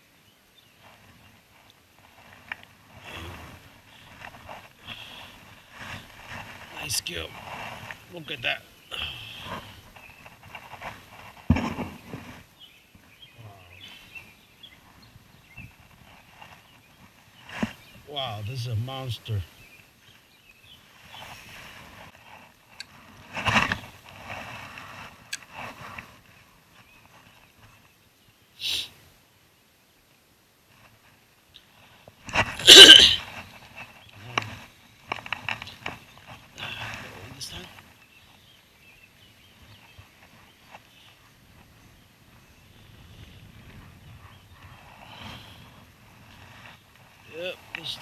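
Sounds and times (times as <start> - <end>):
clothing rustling on camera: 0.8 - 8.1, 20.7 - 27.9.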